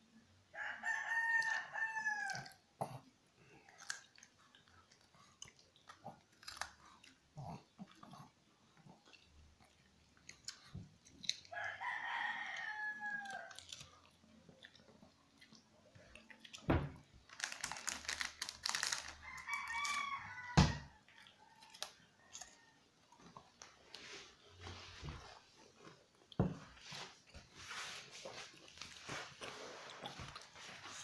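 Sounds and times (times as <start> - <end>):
dog crunching crackers: 2.2 - 20.2.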